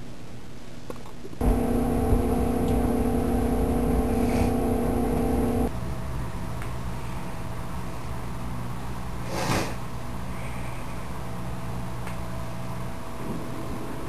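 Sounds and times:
machine electric hum: 0:01.4 - 0:09.2, 0:09.8 - 0:14.0.

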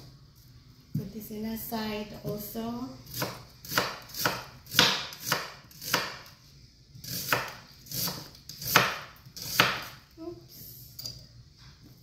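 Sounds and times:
knife chopping onion on wooden board: 0:03.1 - 0:06.3, 0:07.0 - 0:10.0.

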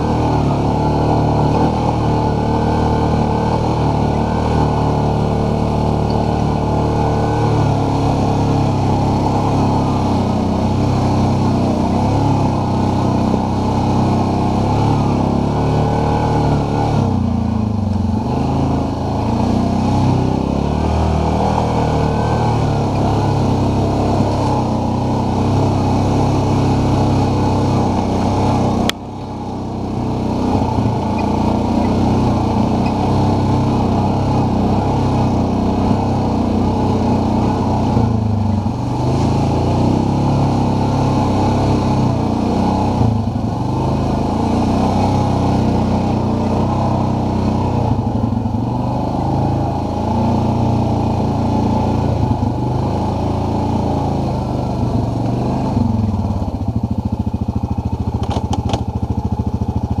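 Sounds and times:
atv engine running: 0:00.0 - 1:00.0
sharp click: 0:58.2 - 0:58.8.

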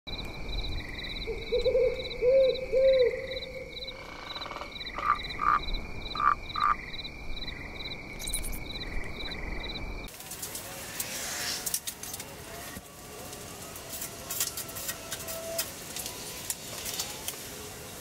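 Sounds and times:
frogs croaking: 0:00.1 - 0:10.1
high trill of insects: 0:00.1 - 0:17.9.

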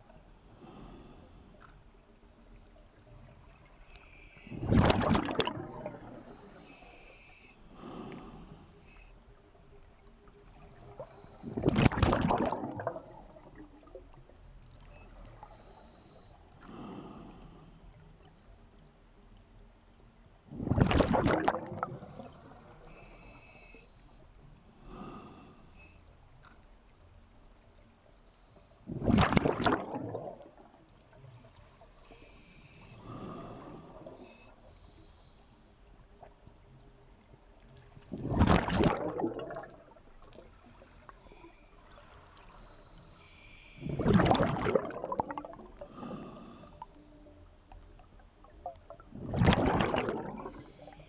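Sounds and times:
bubbling exhalations: 0:04.5 - 0:06.2, 0:11.5 - 0:13.6, 0:20.5 - 0:22.3, 0:28.9 - 0:30.6, 0:38.1 - 0:40.0, 0:43.8 - 0:46.1, 0:48.9 - 0:50.7
hiss of inhalation: 0:32.1 - 0:35.4.

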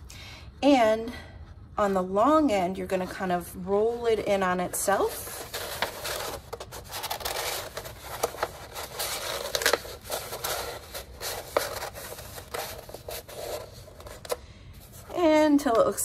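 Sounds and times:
paper rustling and crackling: 0:04.8 - 0:15.2.

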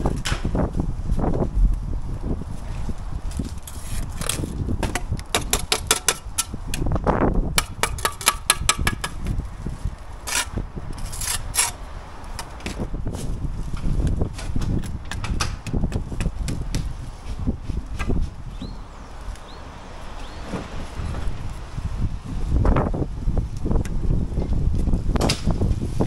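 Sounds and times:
low rumble: 0:00.0 - 0:04.8
trowel tapping and scraping on brick: 0:03.7 - 0:07.0, 0:07.6 - 0:09.4.

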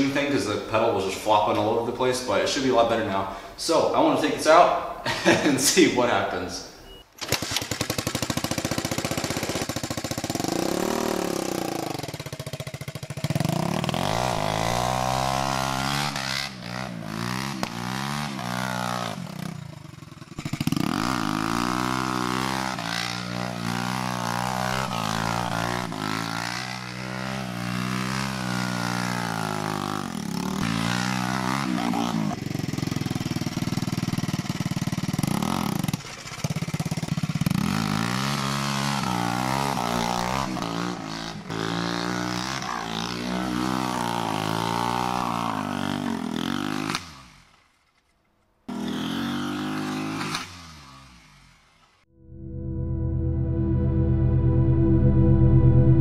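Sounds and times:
go-kart engine revving: 0:07.2 - 0:48.1, 0:48.7 - 0:52.0.

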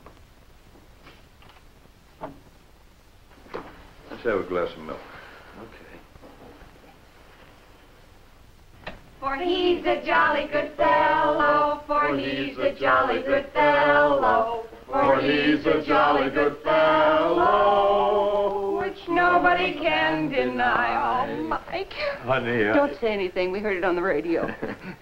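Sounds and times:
group singing unaccompanied: 0:09.2 - 0:21.7.

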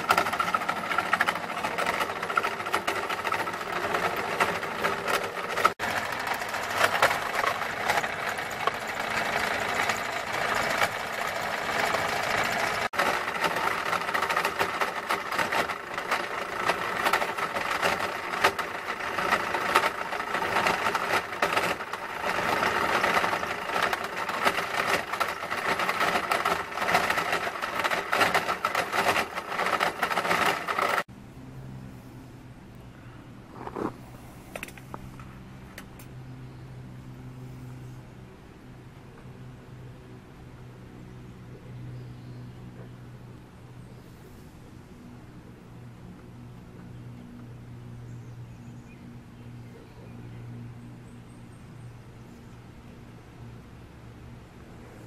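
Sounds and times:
rock crusher crushing rock: 0:00.0 - 0:31.1.

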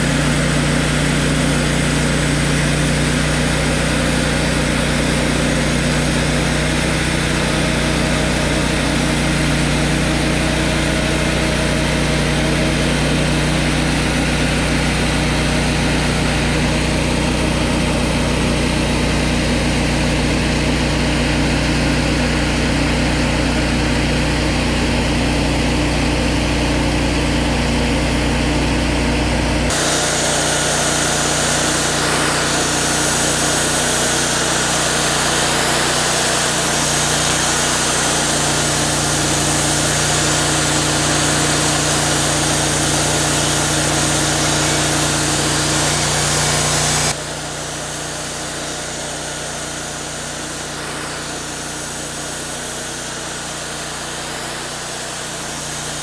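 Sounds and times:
sawmill engine drone: 0:00.0 - 0:56.0
band blade hissing through log: 0:29.7 - 0:56.0.

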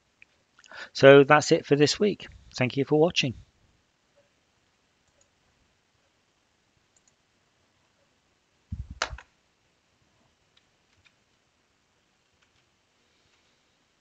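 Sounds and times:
computer mouse clicks: 0:05.0 - 0:05.3, 0:06.9 - 0:07.2.

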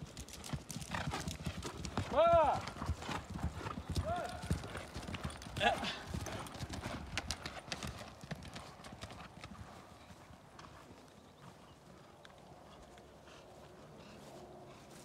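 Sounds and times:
horse hoofbeats on grass: 0:00.0 - 0:15.0.

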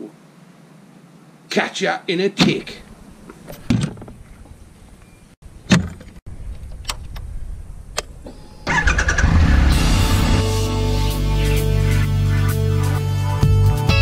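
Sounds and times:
motorcycle engine running: 0:08.7 - 0:11.9.

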